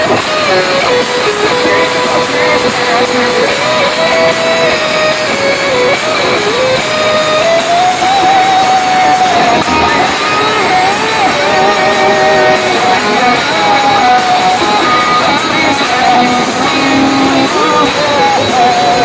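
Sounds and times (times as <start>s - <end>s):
held melody line: 0.0s - 19.0s
rock band playing: 0.0s - 19.0s.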